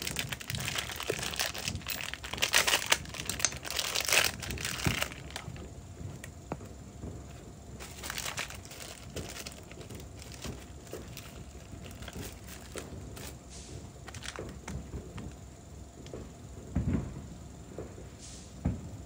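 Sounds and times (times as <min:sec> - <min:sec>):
crinkly rustling: 0:00.0 - 0:06.4, 0:07.3 - 0:15.4.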